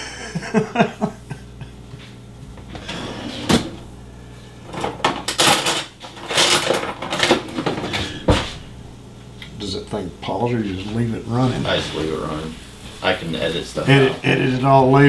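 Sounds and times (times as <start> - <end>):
utensils clattering in drawer: 4.7 - 8.0.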